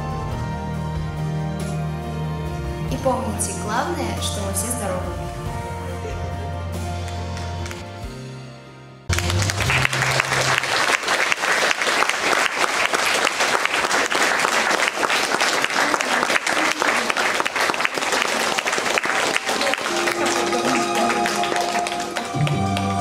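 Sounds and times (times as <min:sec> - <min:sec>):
music track: 0:00.0 - 0:11.6, 0:18.3 - 0:23.0
audience applauding: 0:06.9 - 0:07.9, 0:09.1 - 0:23.0.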